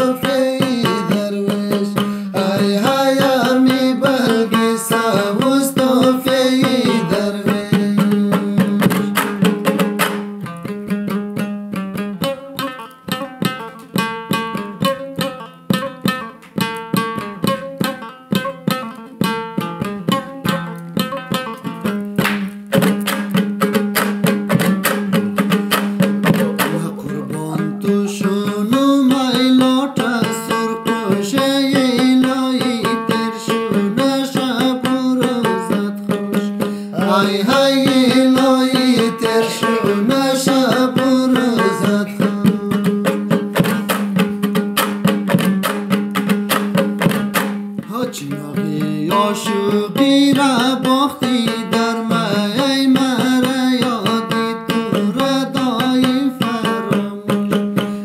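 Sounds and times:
man singing: 0.0 - 9.6, 26.2 - 44.3, 47.8 - 57.9
lute strumming: 0.0 - 58.0.

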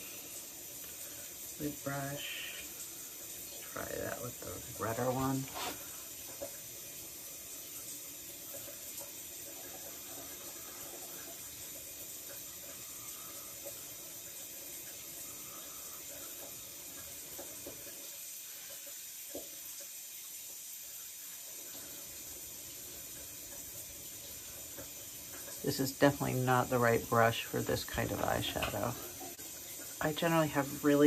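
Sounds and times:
faint hiss: 0.0 - 6.6, 7.4 - 31.0.

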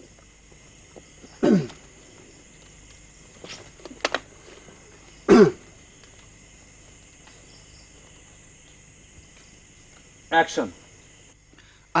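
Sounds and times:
person coughing: 1.4 - 1.8, 5.3 - 5.6.

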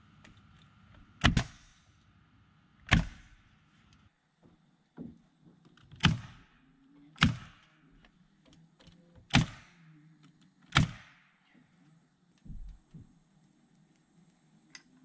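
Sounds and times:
nail gun firing: 1.2 - 1.8, 2.9 - 3.4, 5.9 - 6.5, 7.2 - 7.8, 9.3 - 9.8, 10.7 - 11.3.

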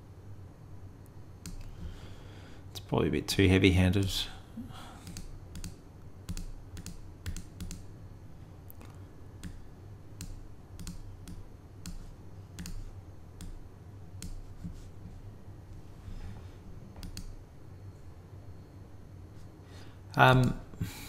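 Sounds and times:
faint low hum: 0.0 - 21.0
mouse and keyboard clicks: 5.0 - 7.9, 10.2 - 13.6, 14.2 - 14.4, 17.0 - 17.4.

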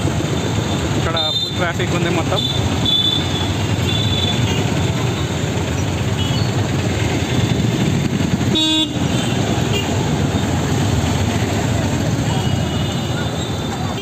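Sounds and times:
traffic engine and road rumble: 0.0 - 14.0
vehicle horn toots: 8.5 - 10.0.

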